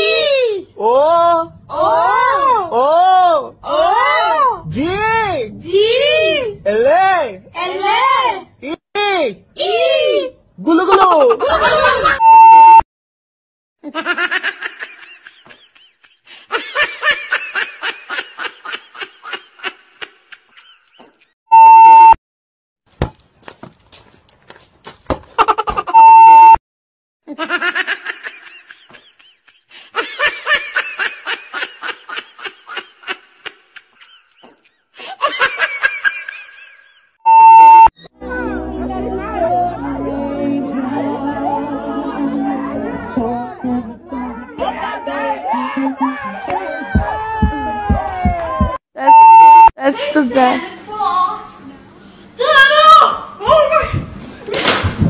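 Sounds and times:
test-tone beep: 12.2 - 12.8, 21.5 - 22.2, 26.0 - 26.6, 37.3 - 38.1, 49.0 - 49.7
rhythmic laughter: 27.3 - 36.8.

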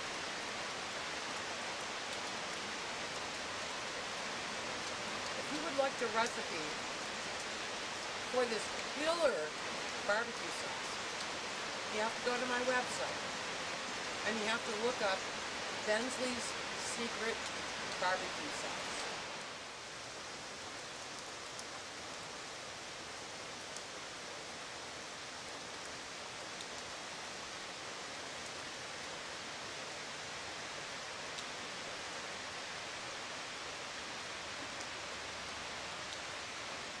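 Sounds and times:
creek rushing: 0.0 - 22.8
steady rain: 0.0 - 37.0.

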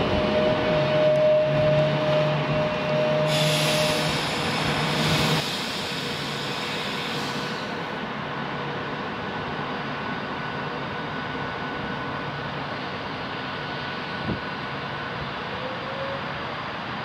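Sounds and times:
electric train two-note whine: 0.0 - 5.4
air hiss: 3.3 - 7.8.

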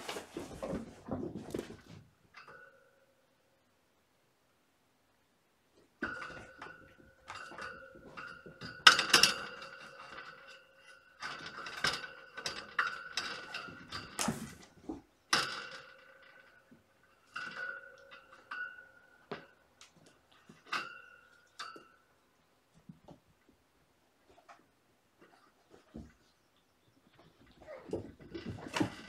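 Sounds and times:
kittens knocking and clattering: 27.0 - 29.0.

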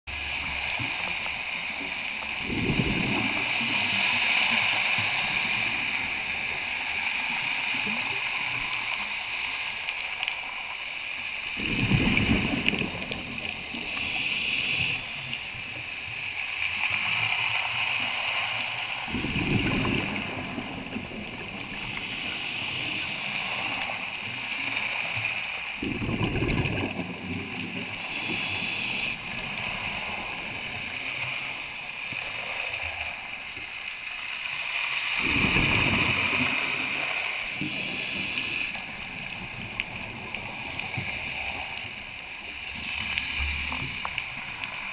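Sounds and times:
diver inhaling through regulator hiss: 0.1 - 0.8, 3.2 - 10.2, 13.2 - 15.6, 21.7 - 24.0, 28.0 - 30.2, 30.8 - 32.6, 37.4 - 38.8, 40.8 - 42.1
exhaled bubbles rushing: 2.4 - 3.6, 11.6 - 14.2, 19.1 - 22.0, 25.8 - 31.7
steady background hiss: 13.5 - 15.7, 21.9 - 24.1, 28.0 - 35.2, 37.2 - 38.8.

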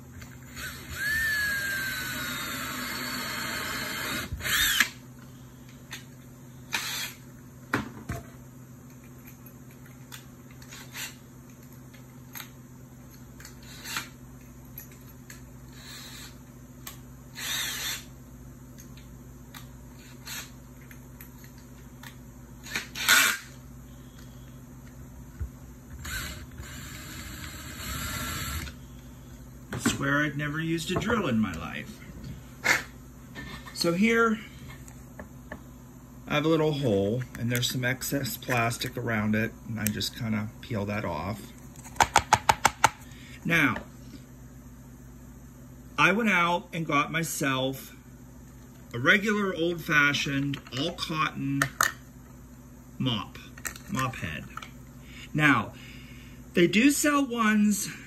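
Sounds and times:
power drill boring plastic: 0.5 - 5.0, 6.8 - 7.2, 17.4 - 18.1, 22.6 - 23.5, 26.0 - 28.8.

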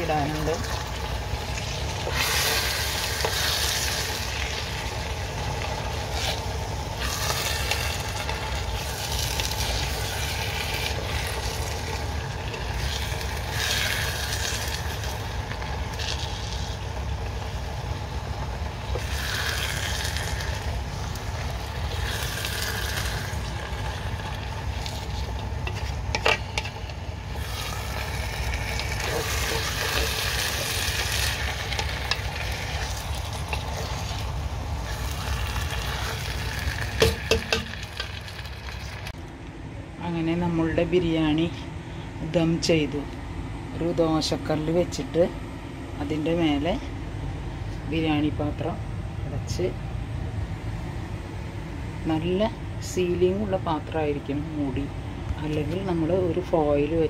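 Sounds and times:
spatula scraping rice in pot: 28.7 - 34.3
knock against pot: 37.0 - 37.7.

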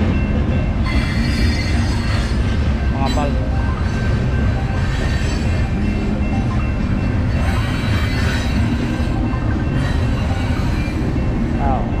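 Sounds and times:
train wheels rumbling on rails: 0.0 - 12.0
wheels squealing: 0.8 - 11.4.

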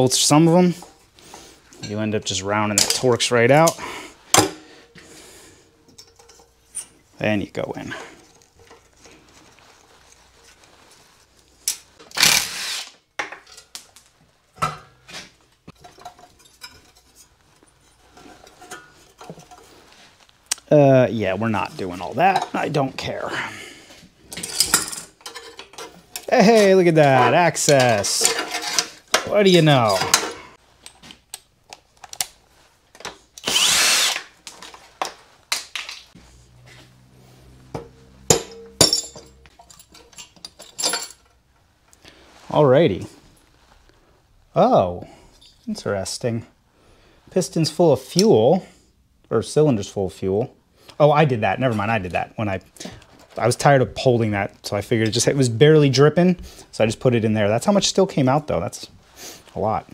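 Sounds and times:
metal tools clinking: 5.8 - 7.1, 15.7 - 19.8, 24.3 - 31.0, 37.7 - 41.5
cordless impact driver running: 33.4 - 34.3.

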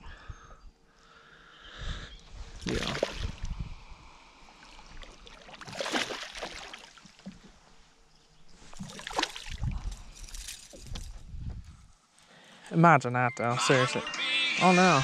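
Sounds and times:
fish splashing in water: 2.6 - 3.4, 5.0 - 7.4, 8.8 - 9.7.

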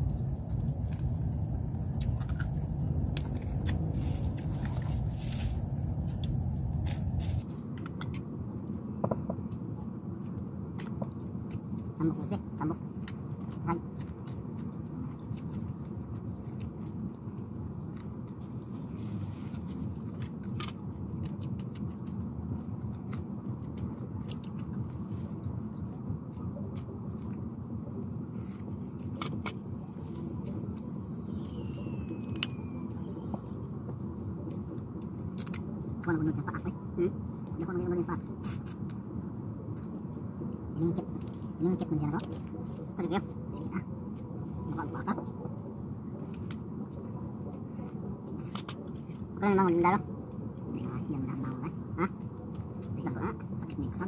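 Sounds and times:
low rumble: 0.0 - 9.9
people eating with hands: 0.0 - 54.0
steady low rumble: 0.0 - 54.0
plastic bag crackling: 2.8 - 7.5.

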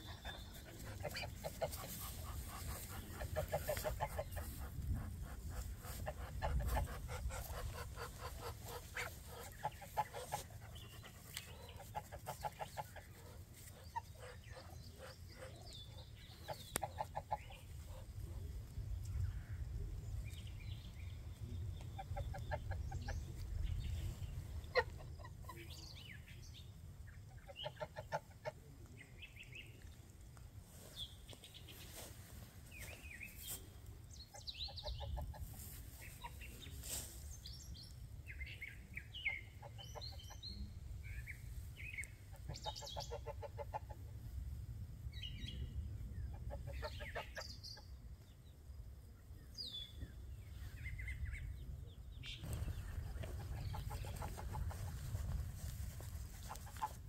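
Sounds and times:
chickens clucking: 0.0 - 18.4, 21.6 - 26.0, 27.2 - 29.0, 32.7 - 37.0, 39.1 - 41.0, 41.6 - 44.4, 46.2 - 48.0, 52.4 - 57.0
small birds chirping: 0.0 - 43.9, 45.1 - 57.0.

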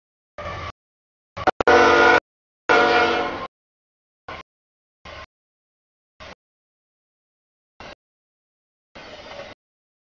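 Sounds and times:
train noise: 0.4 - 0.8, 1.4 - 3.5, 5.0 - 5.3, 8.9 - 9.6
locomotive air horn: 1.4 - 3.5.

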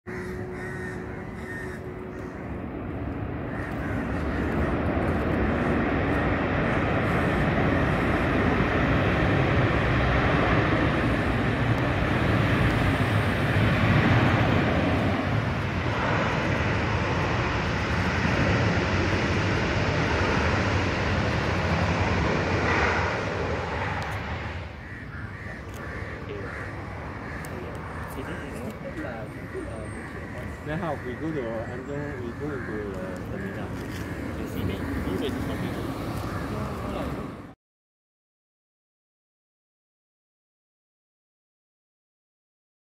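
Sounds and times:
jet engines passing overhead: 0.1 - 37.6.

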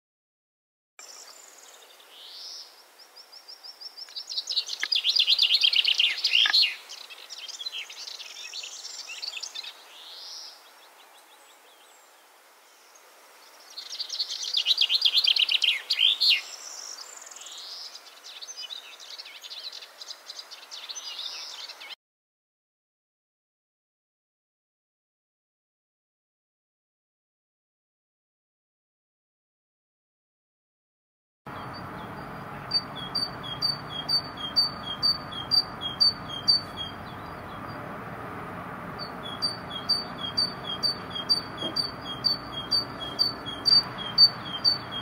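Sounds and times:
faint bird calls: 31.5 - 37.8, 38.9 - 45.0
chaffinch song trill: 31.5 - 45.0.

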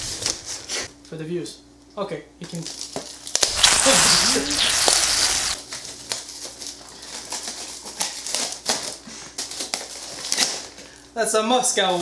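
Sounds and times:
packing tape and cardboard ripping: 3.4 - 5.6.

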